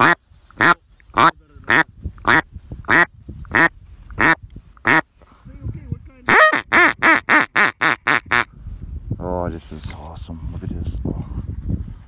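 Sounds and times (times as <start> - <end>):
duck call quacking: 0.0 - 5.0, 6.3 - 8.5.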